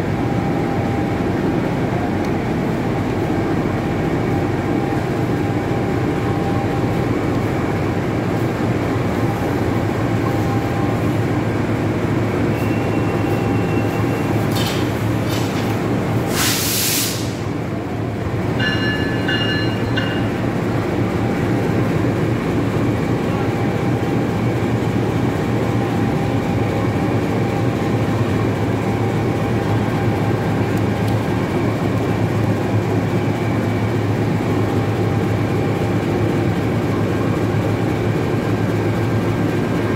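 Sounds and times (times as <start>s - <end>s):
locomotive engine running: 0.0s - 39.9s
loud hiss: 16.3s - 17.5s.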